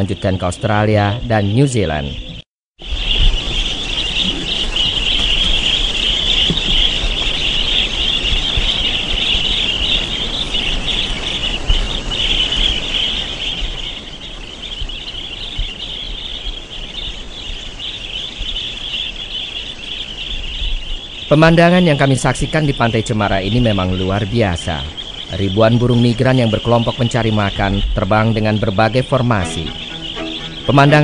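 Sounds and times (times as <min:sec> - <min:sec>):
chorus of high-pitched chirping: 0:00.0 - 0:31.0
low wind rumble on microphone: 0:02.1 - 0:21.3.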